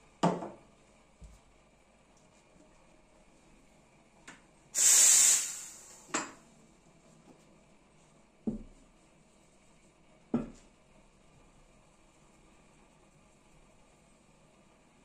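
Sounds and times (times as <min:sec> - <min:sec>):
steam valve click: 0:04.8 - 0:06.3
steam wand hiss: 0:04.8 - 0:06.3.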